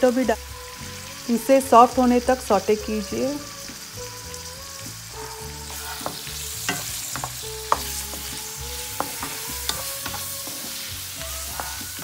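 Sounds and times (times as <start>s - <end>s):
onions sizzling in hot oil: 0.0s - 12.0s
spatula scraping a pan: 5.2s - 12.0s.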